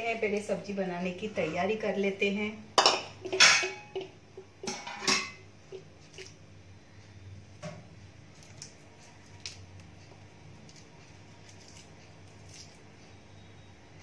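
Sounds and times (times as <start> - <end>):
dishes clinking: 2.8 - 4.0, 4.6 - 5.4.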